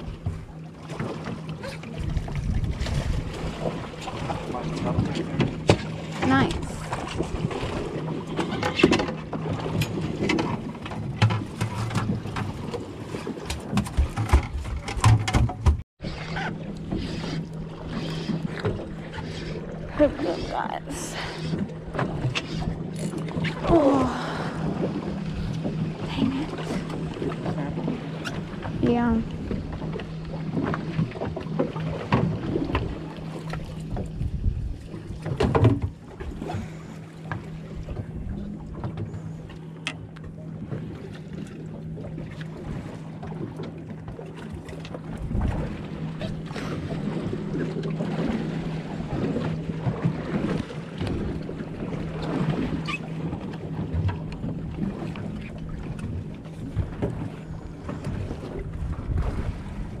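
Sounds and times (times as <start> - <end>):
boat engine low hum: 0.0 - 60.0
water noise: 0.0 - 60.0
wind on microphone: 2.0 - 3.8, 33.9 - 36.6, 54.5 - 60.0.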